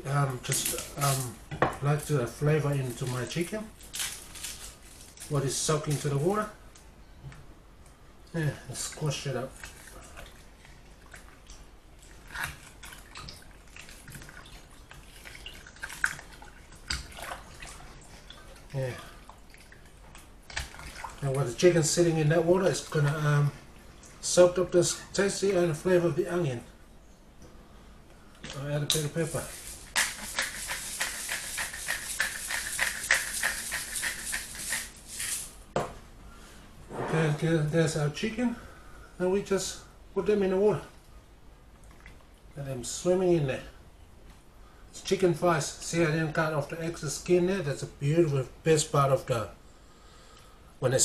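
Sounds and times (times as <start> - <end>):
small splashes and drips: 8.2 - 21.5, 41.7 - 42.6
hands squashing onion in brine: 28.9 - 35.0
pepper shaker rattling: 29.2 - 35.6.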